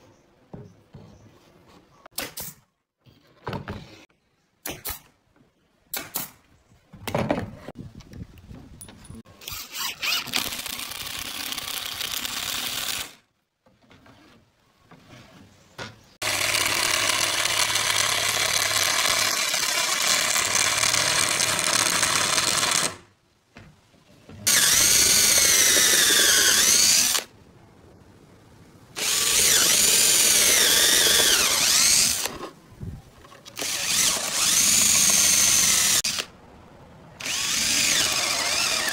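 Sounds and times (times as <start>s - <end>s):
brad nailer shots: 5.9s - 6.4s, 16.2s - 23.1s
cordless drill boring into wood: 9.4s - 13.2s, 16.2s - 23.0s, 24.5s - 27.3s, 29.0s - 32.4s, 33.6s - 36.3s, 37.2s - 38.9s.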